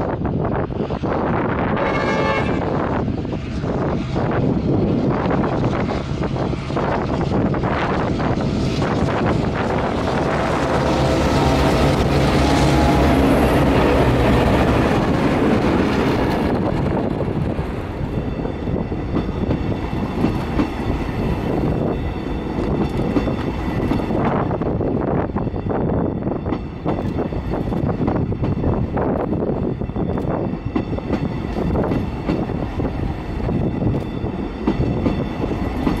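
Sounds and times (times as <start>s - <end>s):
train engine drone: 0.0s - 36.0s
wind buffeting microphone: 0.0s - 36.0s
wheels clattering on rails: 6.4s - 24.6s, 26.4s - 36.0s.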